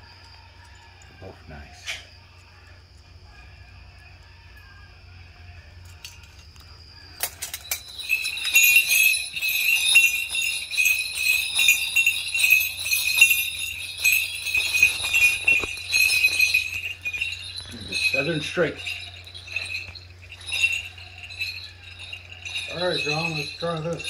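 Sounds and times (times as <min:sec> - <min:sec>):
bells jingling: 0:05.7 - 0:24.0
sharp metallic clinks: 0:05.7 - 0:24.0.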